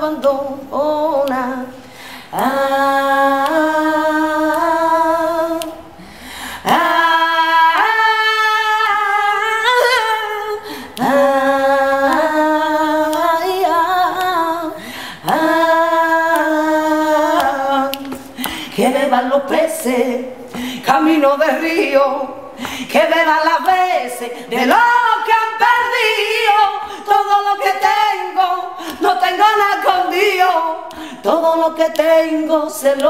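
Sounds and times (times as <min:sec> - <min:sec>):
woman singing a cappella: 0:00.0 - 0:33.0
singer breathing: 0:01.7 - 0:02.3, 0:05.9 - 0:06.7, 0:10.6 - 0:11.0, 0:14.8 - 0:15.3, 0:18.2 - 0:18.8, 0:20.4 - 0:20.8, 0:22.5 - 0:22.9, 0:26.8 - 0:27.0, 0:30.9 - 0:31.2.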